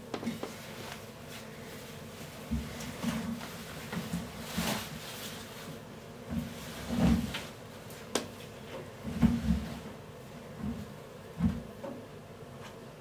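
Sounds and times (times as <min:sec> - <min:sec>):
dull knocks against washing machine: 0:11.4 - 0:12.0.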